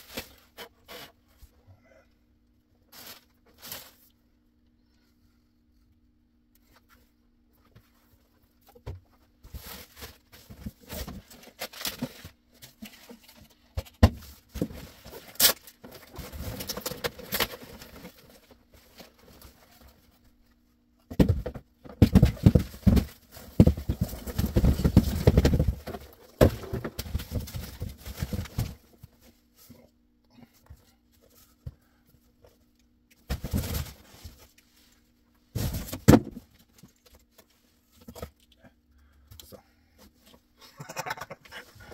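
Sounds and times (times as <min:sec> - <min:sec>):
cardboard and paper rustling: 0:09.4 - 0:20.4, 0:21.2 - 0:29.8, 0:33.3 - 0:34.9.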